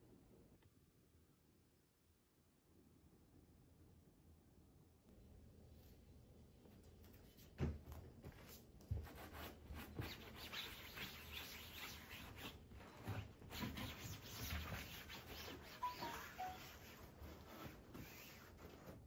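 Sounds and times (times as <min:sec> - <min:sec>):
cloth scrubbing fabric: 0:09.1 - 0:19.0
short high chirps: 0:15.8 - 0:16.8.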